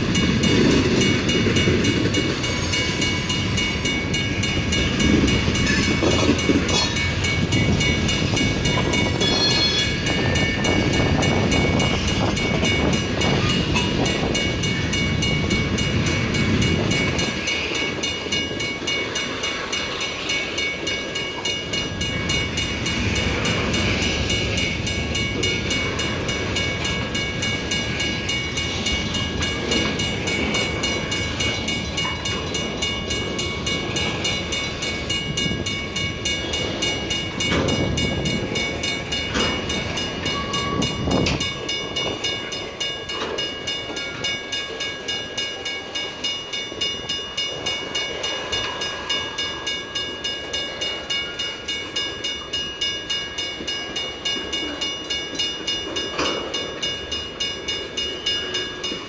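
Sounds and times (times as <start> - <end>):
freight train rumbling past: 0.0 - 59.0
train cars clanking: 0.0 - 59.0
train wheels clicking on rails: 0.0 - 59.0
high wheel squeal: 9.2 - 10.4.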